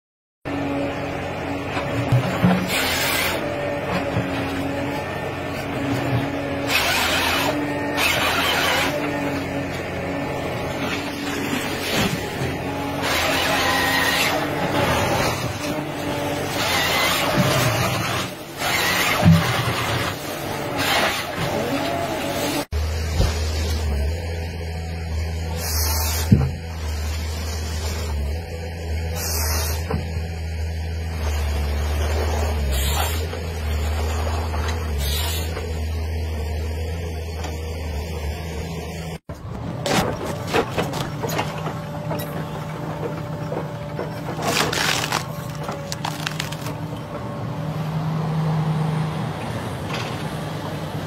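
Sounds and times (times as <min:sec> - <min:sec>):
harvester engine and hydraulics: 0:00.5 - 0:51.0
chain saw cutting logs: 0:02.6 - 0:03.7, 0:06.5 - 0:22.7, 0:30.9 - 0:35.8, 0:44.1 - 0:46.9.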